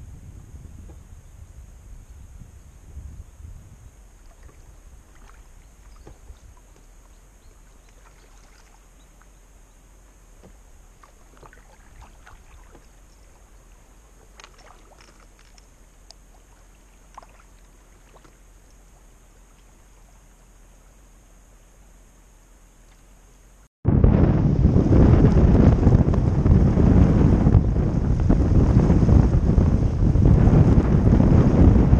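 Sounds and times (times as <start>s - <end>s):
wind rumble on microphone: 0.0s - 21.4s, 23.8s - 31.9s
paddle splashes and drips: 4.1s - 9.4s, 10.3s - 20.2s.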